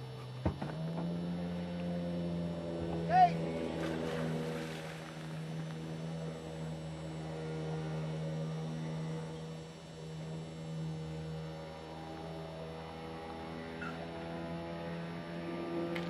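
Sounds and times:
engine running steadily: 0.0s - 16.0s
water splash: 3.7s - 5.7s.

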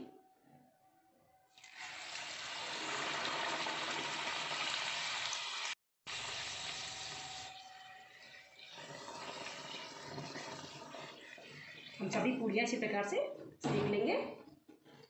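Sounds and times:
dough deep-frying in sizzling oil: 1.5s - 12.2s.

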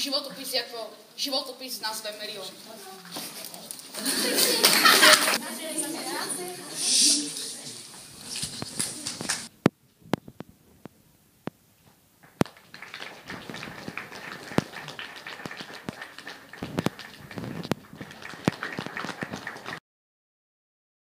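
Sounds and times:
audience applauding: 4.0s - 6.6s, 12.2s - 19.8s.

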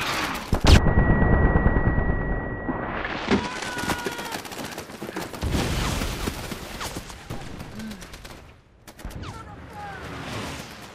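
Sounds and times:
high ringing tone: 0.7s - 2.9s.

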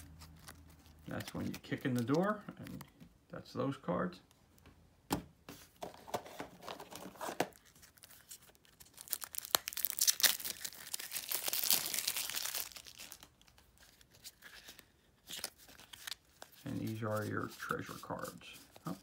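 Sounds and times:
plastic wrap crinkling: 6.7s - 17.6s.

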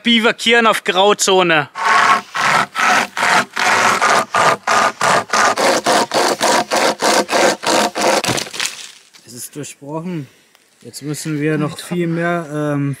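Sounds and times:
hand saw cutting wood: 1.8s - 8.7s.

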